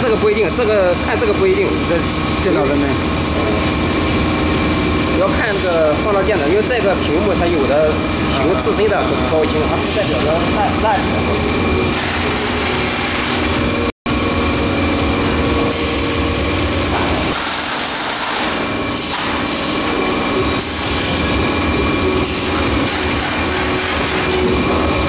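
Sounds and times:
thin steady whine: 0:00.0 - 0:17.7
carton sealing machine running: 0:00.0 - 0:25.0.

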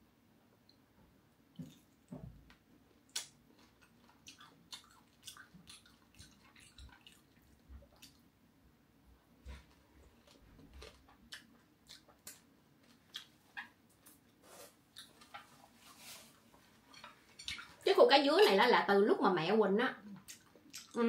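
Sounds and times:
crunchy chewing clicks: 0:01.6 - 0:08.3, 0:10.0 - 0:14.3, 0:14.9 - 0:15.5, 0:20.2 - 0:21.0.

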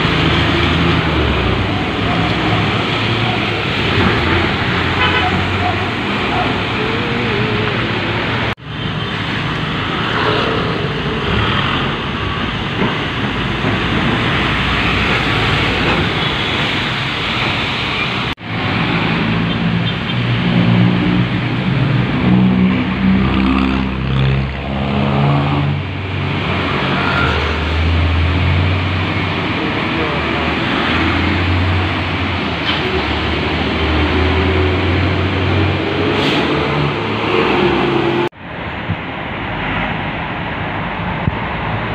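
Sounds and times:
vehicle engines running: 0:00.0 - 0:40.4
tyres hissing on wet road: 0:00.0 - 0:41.9.

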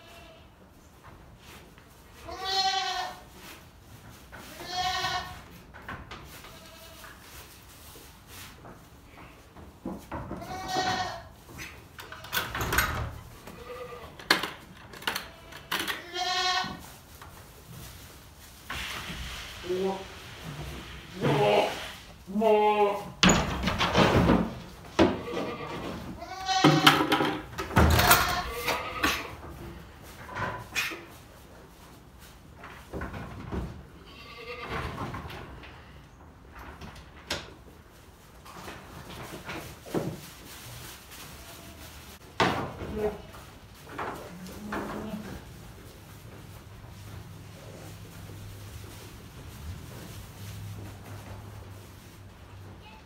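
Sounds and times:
goat bleating: 0:00.0 - 0:00.5, 0:02.2 - 0:03.2, 0:04.5 - 0:05.4, 0:10.4 - 0:11.3, 0:13.5 - 0:14.2, 0:15.2 - 0:16.8, 0:25.2 - 0:26.9, 0:28.0 - 0:29.3, 0:34.0 - 0:34.7
sharp knocks and clatters: 0:23.2 - 0:28.4.

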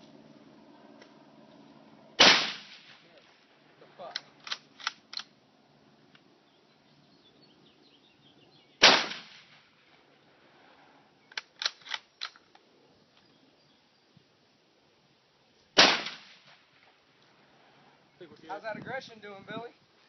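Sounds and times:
shotgun blast: 0:02.2 - 0:03.0, 0:08.8 - 0:09.7, 0:15.8 - 0:16.6
sharp clicks: 0:04.1 - 0:05.4, 0:11.3 - 0:12.7.

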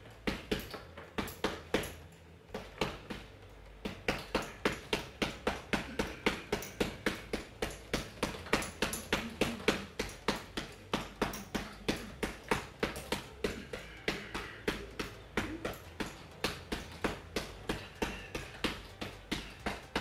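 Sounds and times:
punches hitting heavy bag: 0:00.2 - 0:20.0.

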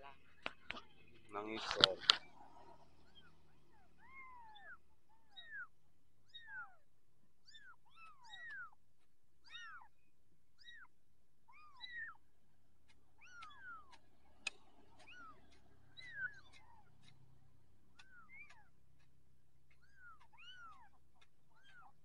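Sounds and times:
faint clicks: 0:00.3 - 0:05.7, 0:07.4 - 0:10.9, 0:12.8 - 0:22.0
kittens mewing: 0:01.8 - 0:06.8, 0:07.4 - 0:08.8, 0:09.4 - 0:09.9, 0:11.5 - 0:12.2, 0:13.1 - 0:14.0, 0:14.9 - 0:17.3, 0:19.7 - 0:22.0.

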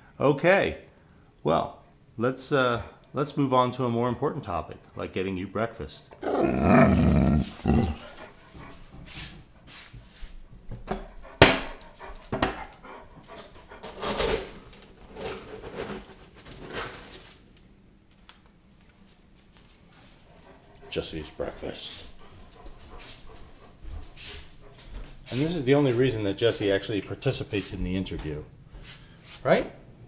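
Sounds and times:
dog whining and grumbling: 0:06.2 - 0:08.3.

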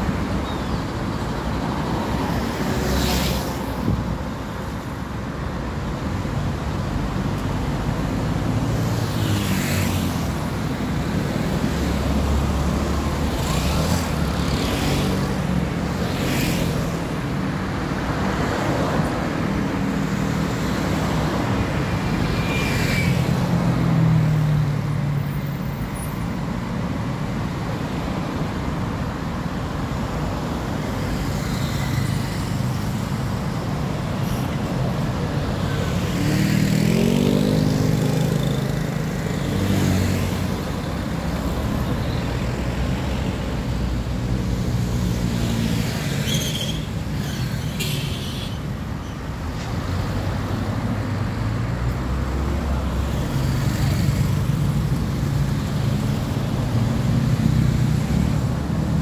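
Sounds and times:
cars and trucks passing: 0:00.0 - 0:59.0
road traffic hum: 0:00.0 - 0:59.0
engine passing by: 0:35.9 - 0:40.5.

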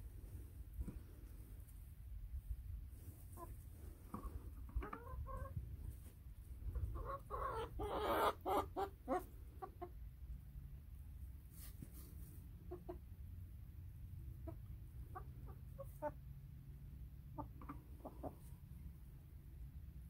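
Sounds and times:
hens clucking: 0:03.0 - 0:10.4, 0:12.2 - 0:13.2, 0:14.2 - 0:18.8
hens squawking: 0:04.7 - 0:05.6, 0:06.7 - 0:09.9.

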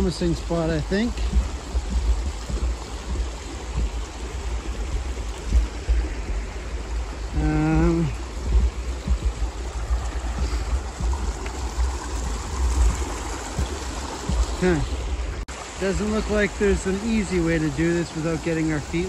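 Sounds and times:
low uneven rumble: 0:00.0 - 0:19.0
river rushing over rocks: 0:00.0 - 0:19.0.

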